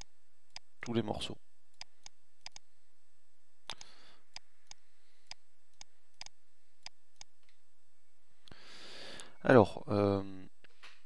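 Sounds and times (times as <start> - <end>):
mouse and keyboard clicks: 1.8 - 2.6.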